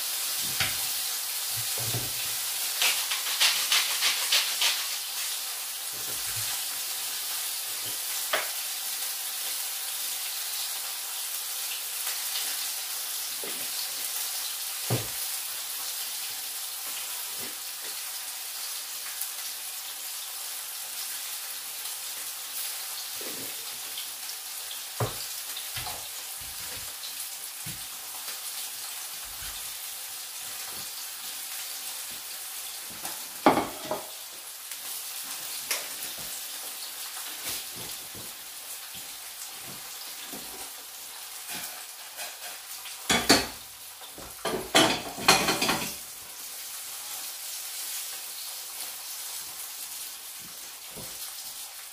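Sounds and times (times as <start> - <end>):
fish sizzling in a frying pan: 0.0 - 51.9
pan and utensils clattering: 1.6 - 5.4, 32.9 - 34.2, 41.4 - 43.6, 44.2 - 46.1.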